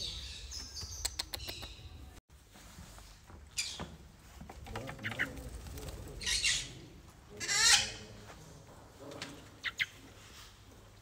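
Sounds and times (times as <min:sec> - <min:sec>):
parrots squawking: 0:07.4 - 0:08.0.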